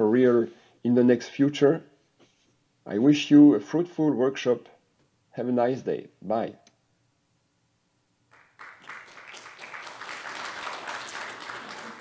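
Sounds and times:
audience applauding: 8.3 - 12.0.

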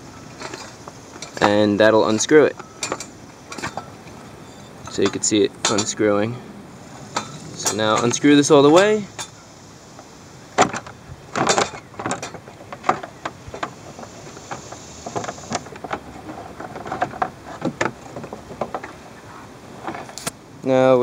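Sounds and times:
metal clicks and knocks: 0.3 - 4.2, 4.8 - 6.1, 7.1 - 9.4, 10.6 - 19.0.

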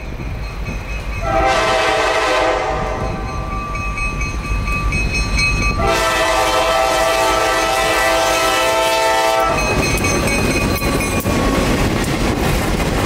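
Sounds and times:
train rumbling: 0.0 - 13.0
locomotive air horn blasts: 1.2 - 3.3, 5.8 - 9.6.

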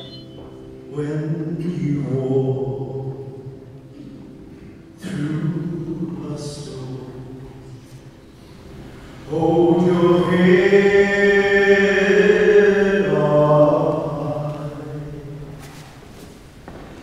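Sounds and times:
man singing through a microphone: 0.9 - 3.6, 5.0 - 7.6, 9.3 - 15.6.

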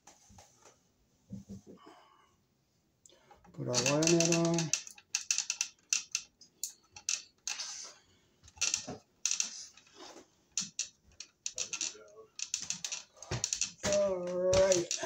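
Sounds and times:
wire nut crackling clicks: 3.8 - 7.6, 8.5 - 9.9, 10.6 - 15.0.

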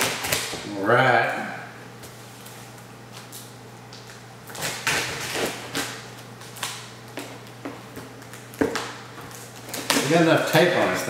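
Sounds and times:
packing tape tearing: 0.0 - 0.6, 4.5 - 6.9.

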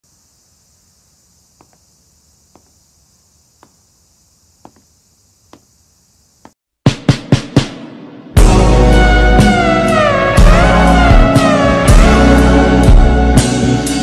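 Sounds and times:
high insect-like hiss: 0.0 - 6.6
soft footsteps: 1.6 - 2.9, 3.6 - 3.8, 4.6 - 5.7.

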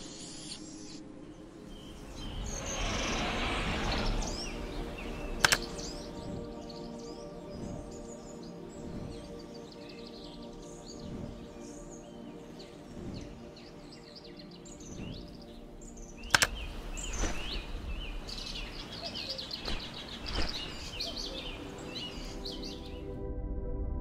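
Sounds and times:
birds chirping and singing: 0.0 - 23.2
ambient music pad: 0.0 - 24.0
sharp click: 5.4 - 5.8, 16.3 - 17.4.

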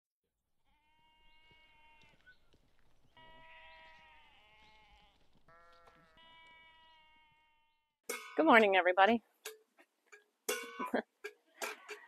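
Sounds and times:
lambs bleating faintly: 0.7 - 2.4, 3.2 - 7.8.

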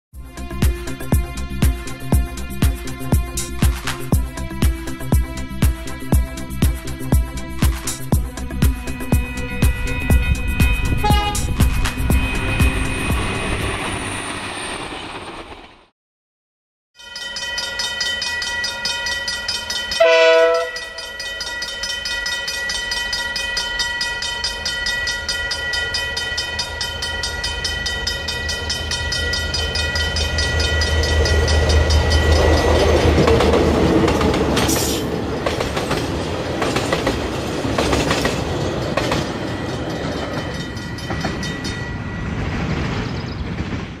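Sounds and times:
locomotive horn blast: 10.7 - 11.8, 20.0 - 21.1
wagons clattering over rail joints: 28.9 - 44.0.

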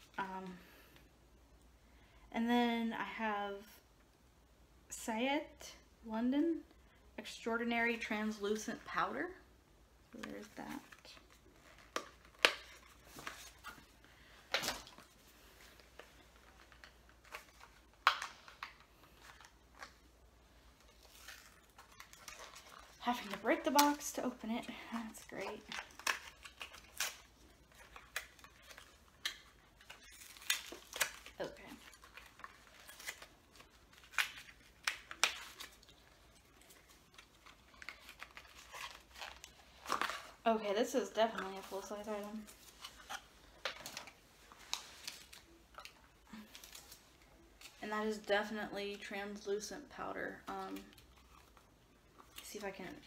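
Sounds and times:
paper packaging crinkling: 20.6 - 40.6.

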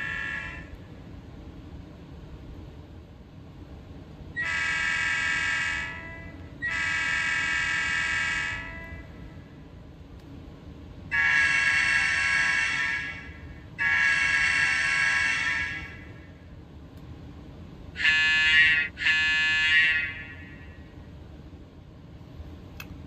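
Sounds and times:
locomotive air horn blasts: 4.4 - 9.2, 11.1 - 16.1, 18.0 - 20.9.

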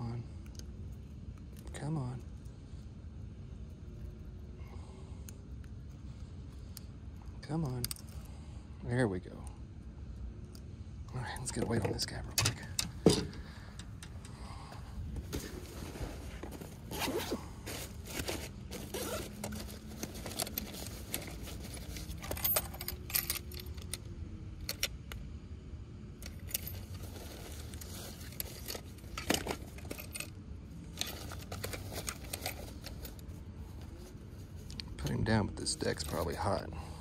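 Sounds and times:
gear clicking and rattling: 11.3 - 25.2, 26.2 - 35.1
fabric bag rustling: 15.1 - 22.4
zipper opening: 16.1 - 21.9.

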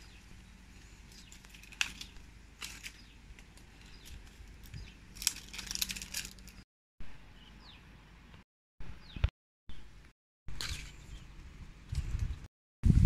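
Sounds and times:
leaves and twigs rustling: 0.0 - 6.6
sharp twig crack: 1.1 - 6.6.

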